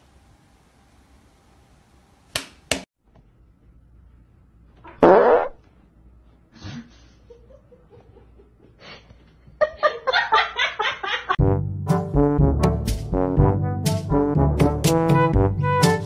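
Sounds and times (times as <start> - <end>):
loud fart: 4.8 - 5.6.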